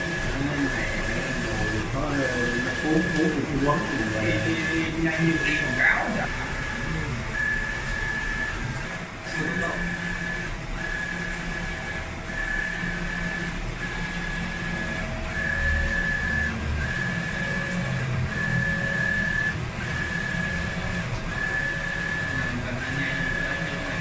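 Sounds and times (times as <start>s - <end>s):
printer carriage whining: 0.0s - 24.0s.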